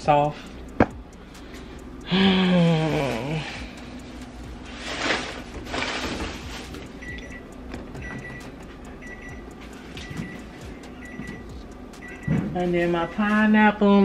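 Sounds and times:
rustling and handling noise: 3.0s - 11.5s.

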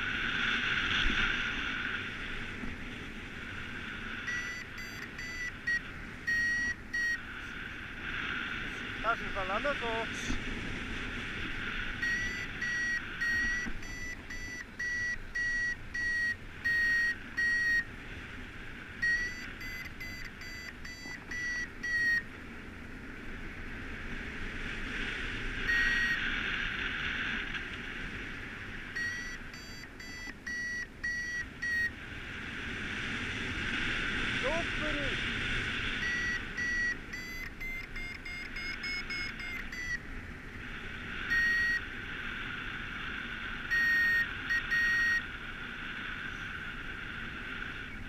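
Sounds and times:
variometer high beeps: 4.2s - 7.3s, 12.0s - 17.9s, 19.0s - 22.3s, 25.6s - 26.2s, 28.9s - 32.0s, 35.9s - 40.0s, 41.3s - 41.9s, 43.7s - 45.2s.

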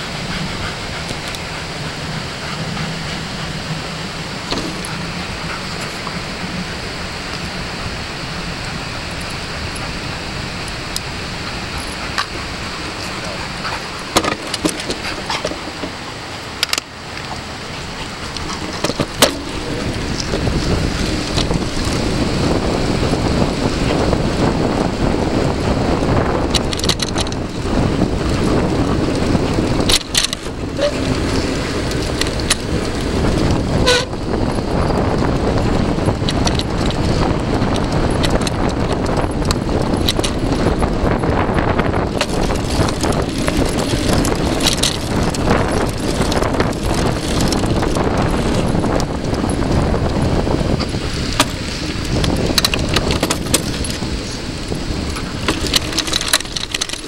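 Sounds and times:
bike tyre noise: 0.0s - 57.0s
sharp clicks and rattles: 0.0s - 57.0s
wind buffeting microphone: 0.0s - 57.0s.

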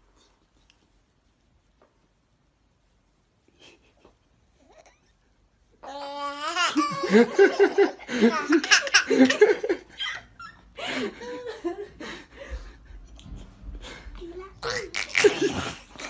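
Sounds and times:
baby vocal sounds: 5.8s - 7.1s, 14.5s - 16.0s
baby laughing: 5.8s - 10.3s, 14.6s - 16.0s.

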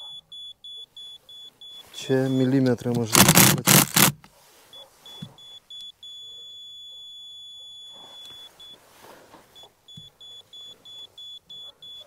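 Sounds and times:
short beeps: 0.1s - 2.5s, 5.1s - 8.8s.

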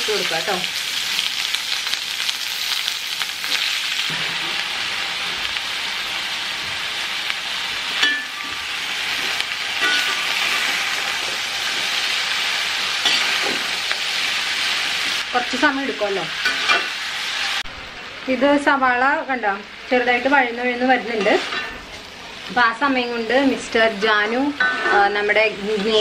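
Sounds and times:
onions sizzling in oil: 0.0s - 26.0s
metal spoon clinking on pan: 8.0s - 8.6s, 9.8s - 10.3s.

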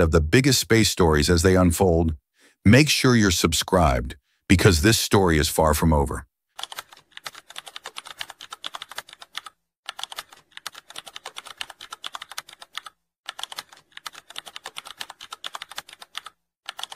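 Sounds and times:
keyboard typing: 6.6s - 16.9s.

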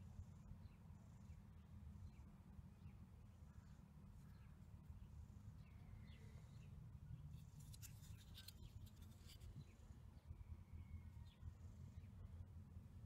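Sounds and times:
clicks and scratches of plastic: 7.4s - 9.6s.

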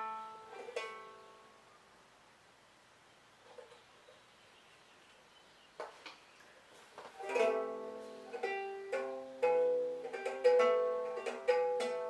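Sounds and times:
ukulele chords strummed: 0.0s - 1.6s, 7.2s - 12.0s.

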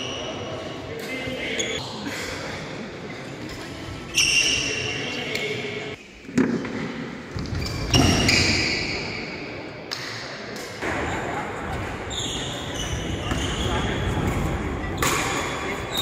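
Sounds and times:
sneakers squealing on court floor: 4.1s - 5.1s, 7.4s - 9.2s, 12.1s - 14.2s.

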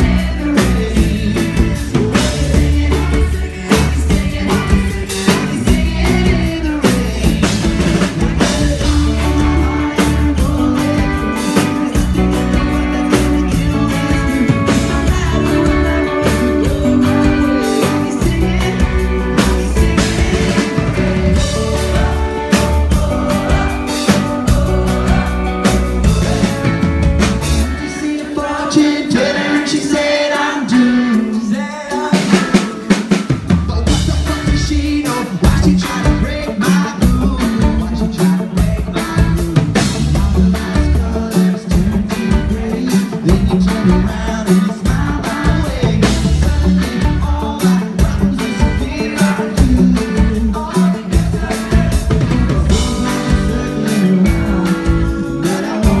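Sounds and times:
bass guitar: 0.0s - 56.0s
drum kit: 0.0s - 56.0s
electric guitar: 0.0s - 56.0s.

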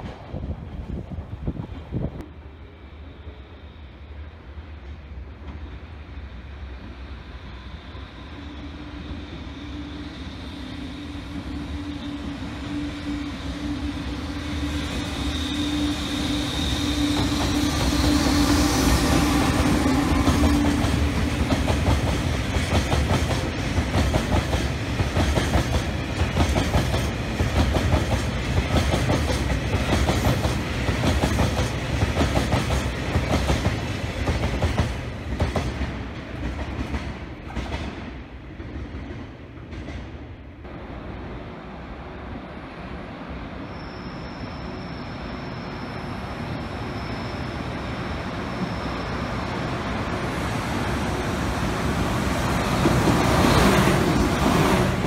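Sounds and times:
locomotive humming tone: 1.8s - 37.6s
train wheels clickety-clack: 14.8s - 40.3s, 51.2s - 55.0s.

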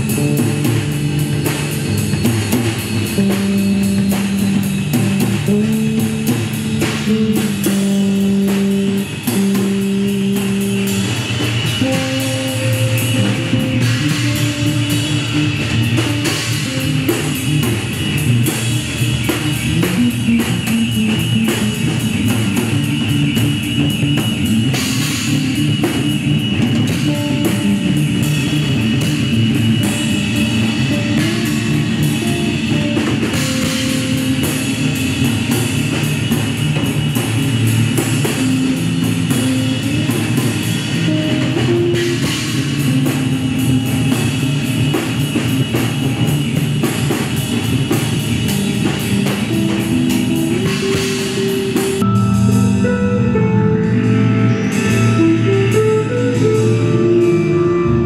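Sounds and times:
busy drumming with cymbals: 0.0s - 58.0s
electric bass notes: 0.0s - 58.0s
sustained high guitar tone: 49.1s - 58.0s.

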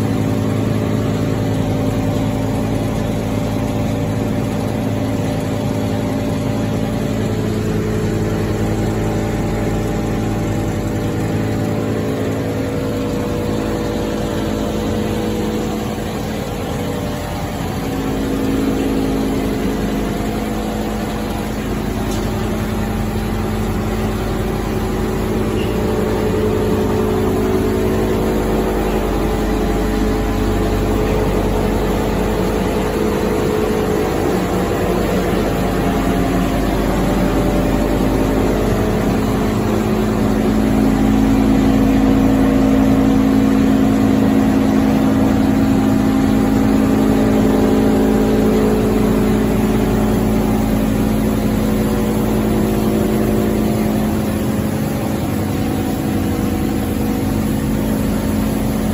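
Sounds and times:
electric motors humming: 0.0s - 58.9s.

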